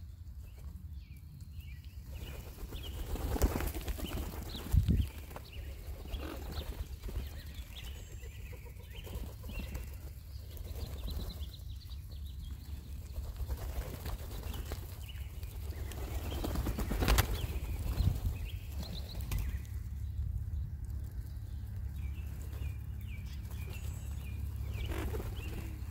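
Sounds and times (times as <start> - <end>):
wing flaps: 2.2 - 11.4, 13.0 - 19.6, 24.5 - 25.9.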